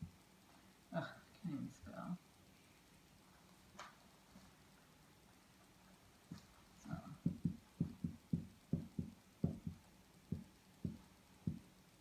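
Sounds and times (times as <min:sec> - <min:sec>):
marker tapping on whiteboard: 0:07.2 - 0:11.7.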